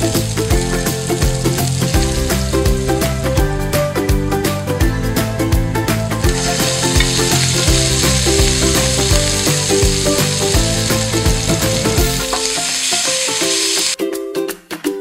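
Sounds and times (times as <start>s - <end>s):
meat sizzling in hot oil: 0.0s - 3.4s, 6.2s - 14.0s
background music: 0.0s - 15.0s.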